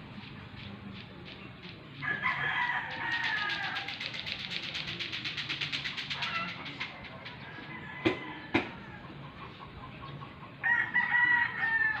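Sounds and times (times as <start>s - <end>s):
rooster crowing: 2.0s - 3.9s, 7.5s - 9.1s, 10.6s - 12.0s.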